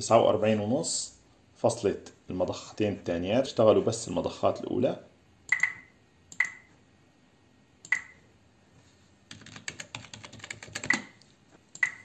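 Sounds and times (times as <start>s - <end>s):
keyboard keys clicking: 9.3s - 11.2s.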